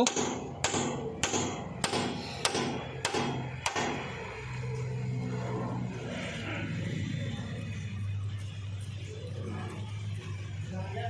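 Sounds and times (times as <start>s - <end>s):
hammer striking steel: 0.0s - 4.2s.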